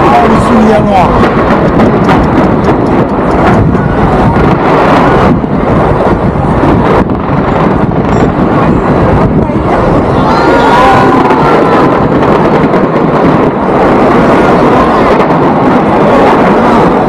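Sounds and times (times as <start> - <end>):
fireworks bangs and crackles: 0.0 - 17.0.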